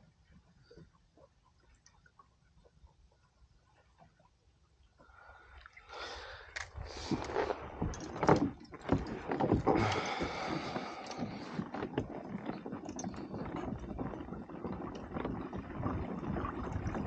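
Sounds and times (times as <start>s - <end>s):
gear knocking on plastic kayak: 7.7s - 17.0s.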